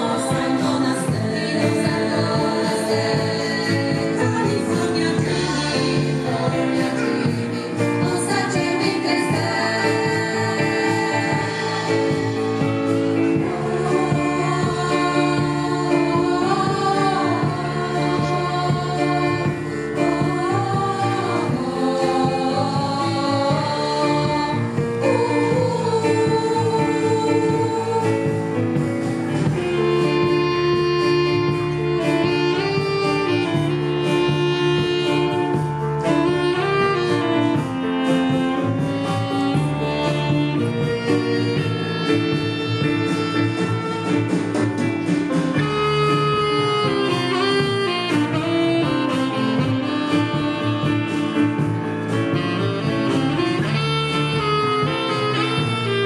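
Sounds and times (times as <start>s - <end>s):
women singing in harmony: 0.0s - 44.3s.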